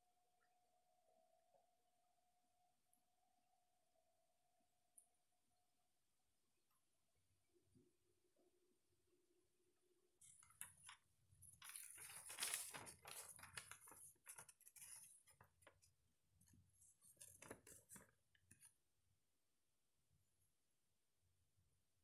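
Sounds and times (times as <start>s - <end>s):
paper rustling and crinkling: 10.2s - 16.0s, 16.8s - 18.7s.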